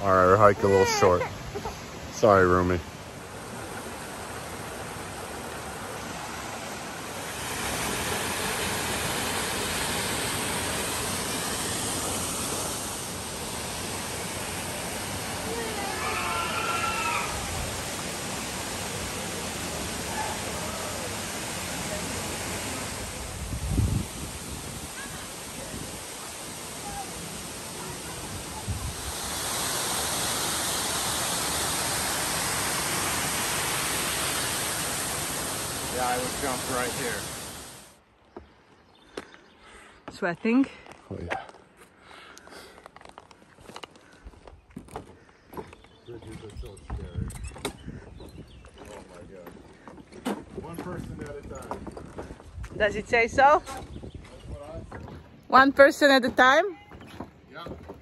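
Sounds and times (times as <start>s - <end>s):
waterfall and stream rushing: 0.0s - 38.0s.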